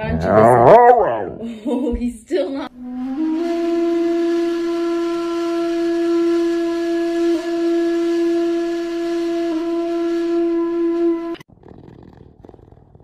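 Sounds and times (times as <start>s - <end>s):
held musical note: 2.7s - 11.5s.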